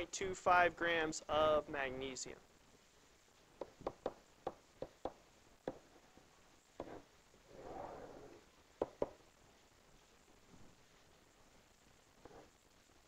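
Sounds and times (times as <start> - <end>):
pen tapping on whiteboard: 3.6 - 5.8, 8.8 - 9.2
pen rubbing along board: 6.8 - 8.4.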